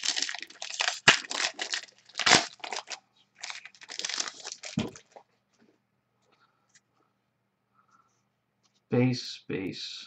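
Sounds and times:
wrapper tearing and crinkling: 0.0 - 5.2.

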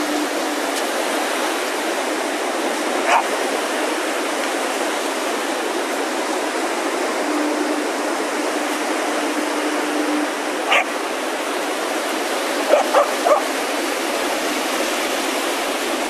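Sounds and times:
waves washing onto sand: 0.0 - 16.0
dog yelping: 3.1 - 3.3, 10.7 - 10.9, 12.7 - 13.5.

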